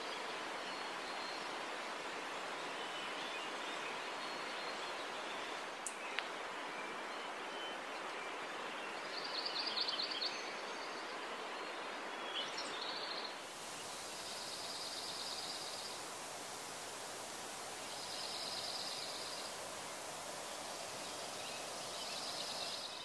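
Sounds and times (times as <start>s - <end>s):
mountain stream rushing: 10.4s - 23.0s.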